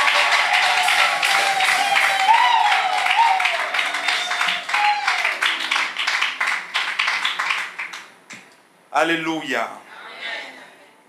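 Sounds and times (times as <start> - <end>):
crowd applauding and cheering: 0.0 - 8.4.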